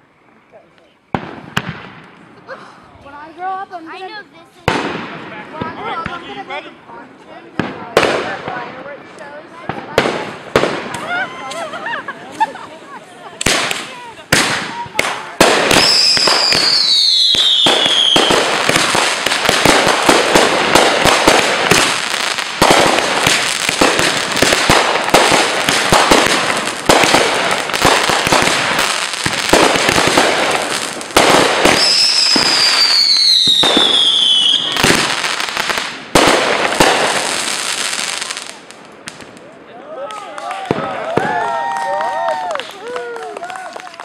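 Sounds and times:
fireworks crackling and popping: 0.0s - 44.0s
falling firework whistles: 15.7s - 18.8s, 31.6s - 35.2s.

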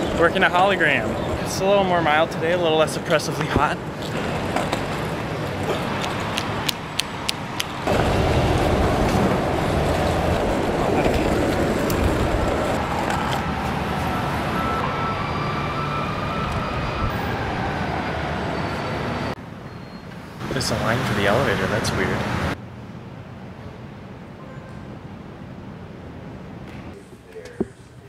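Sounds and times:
street traffic noise: 0.0s - 28.0s.

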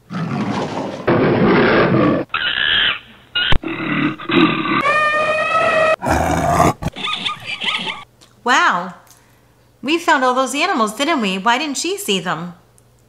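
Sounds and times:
animal roar: 0.0s - 8.0s
animal calls: 1.7s - 8.0s.

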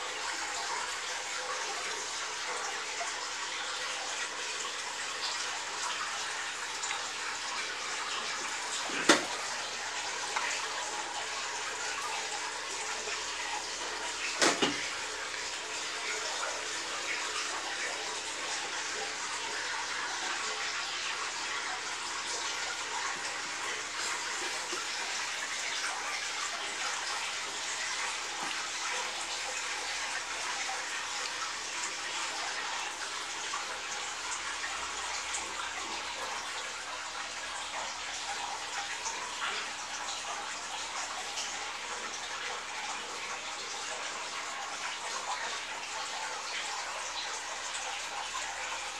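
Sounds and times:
water trickling in fish tank: 0.0s - 48.9s.

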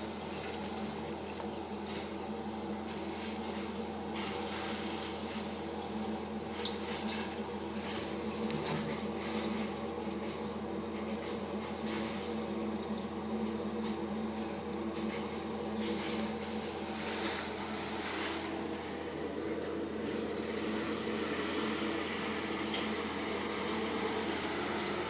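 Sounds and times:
aquarium filter humming: 0.0s - 25.0s
water trickling and bubbling: 0.0s - 25.0s.

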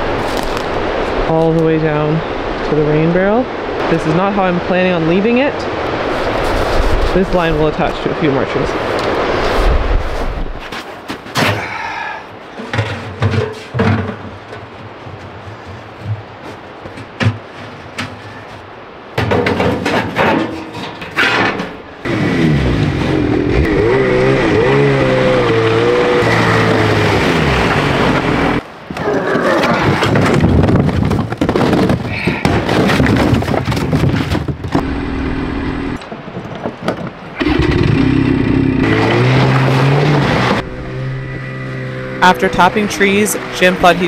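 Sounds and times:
snowmobile engine revving: 22.0s - 28.6s, 37.4s - 44.0s.

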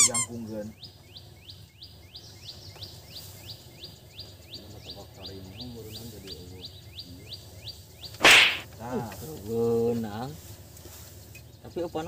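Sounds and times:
high sharp chirping call: 0.0s - 0.9s, 3.1s - 8.7s.

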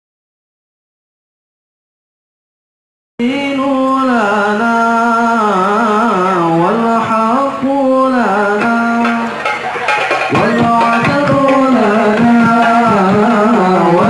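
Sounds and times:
man singing unaccompanied: 3.2s - 14.0s.

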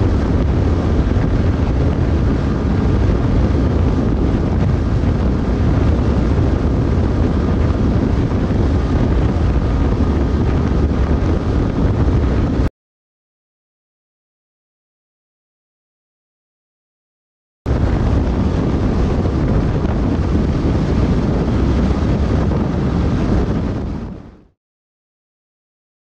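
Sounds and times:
motorcycle engine at full throttle: 0.0s - 12.7s, 17.7s - 23.8s
wind rushing on microphone: 0.0s - 12.7s, 17.7s - 24.6s.

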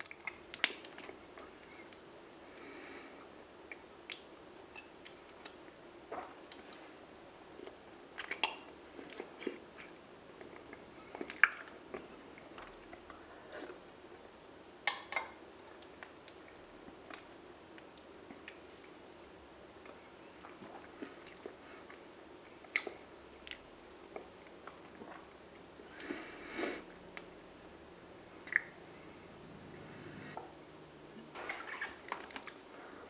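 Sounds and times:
mouth clicks and smacks: 0.0s - 1.2s, 28.4s - 28.9s, 31.2s - 32.7s.

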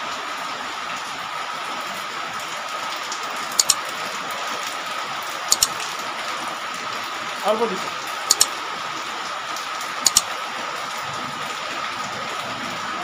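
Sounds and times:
steady rain falling: 0.0s - 13.0s
sharp clicks: 3.6s - 3.8s, 5.5s - 5.8s, 8.3s - 8.6s, 10.0s - 10.3s.

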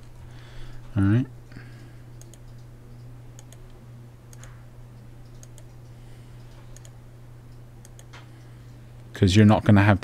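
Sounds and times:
low electrical hum: 0.0s - 10.0s
computer mouse clicks: 2.2s - 4.6s, 5.2s - 7.0s, 7.8s - 8.8s.

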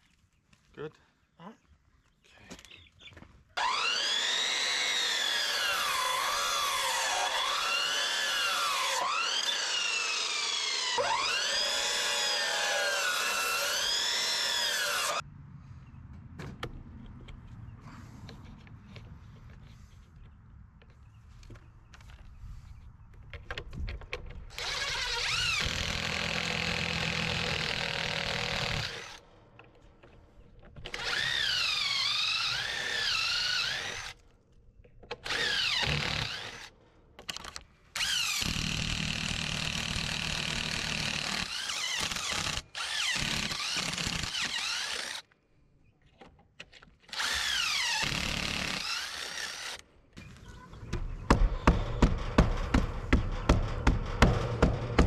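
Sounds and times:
power drill running: 3.6s - 15.2s, 24.5s - 29.2s, 30.9s - 34.1s, 38.0s - 45.2s, 47.1s - 49.8s
sharp knocks: 50.9s - 55.0s.

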